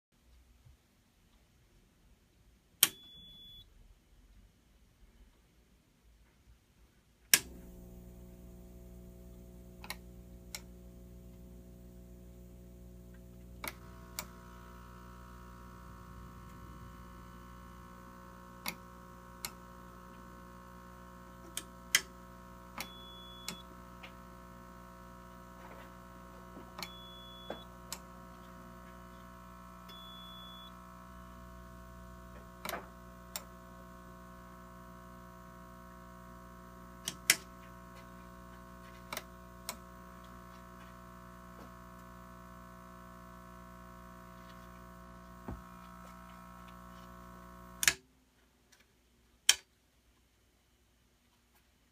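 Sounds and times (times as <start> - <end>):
toggle switch clicks: 2.8 - 3.4, 7.3 - 7.6, 9.8 - 10.7, 37.0 - 37.5, 47.8 - 48.0
short high beeps: 2.9 - 3.6
device humming: 7.4 - 48.0.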